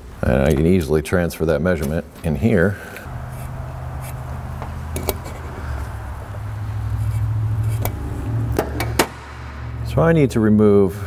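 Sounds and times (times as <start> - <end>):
motor droning: 3.0 - 9.8.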